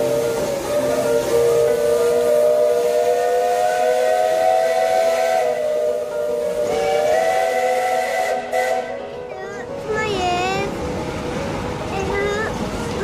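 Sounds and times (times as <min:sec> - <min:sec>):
steam whistles blowing: 0:00.0 - 0:09.0
steam hissing: 0:00.0 - 0:09.1.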